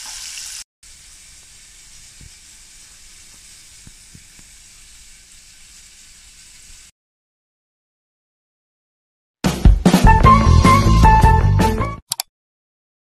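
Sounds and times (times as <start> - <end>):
hot oil sizzling: 0.0 - 6.9.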